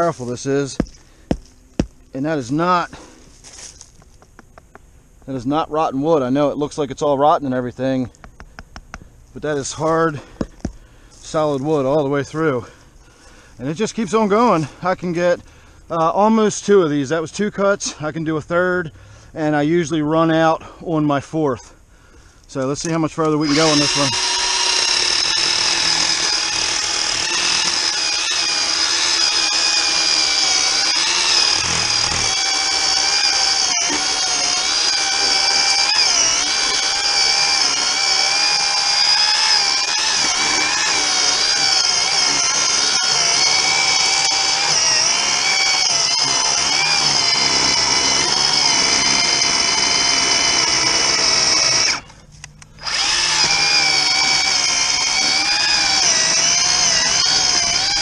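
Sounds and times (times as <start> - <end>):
electric chainsaw cutting wood: 23.4 - 52.0, 52.8 - 58.0.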